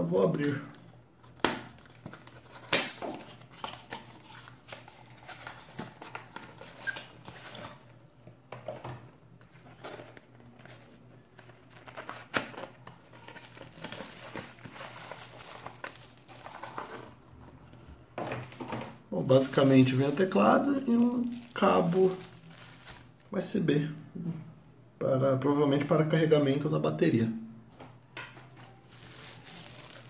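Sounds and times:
bubble wrap bag crinkling: 0:01.2 - 0:07.9, 0:09.5 - 0:17.8, 0:19.2 - 0:23.3, 0:28.6 - 0:30.0.

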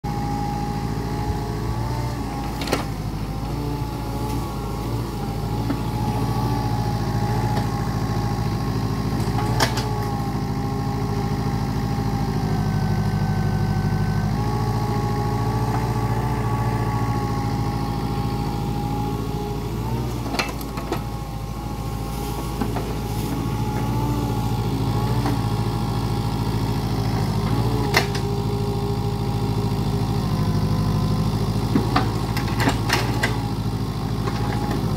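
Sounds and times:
excavator diesel engine running: 0:00.0 - 0:34.9
hydraulic whine wavering in pitch: 0:00.1 - 0:30.3.

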